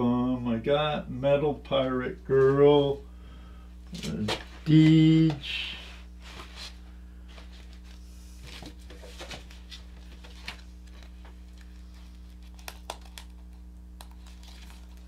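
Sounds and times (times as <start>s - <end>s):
steady low hum: 0.0s - 15.0s
paper rustling: 7.4s - 13.2s.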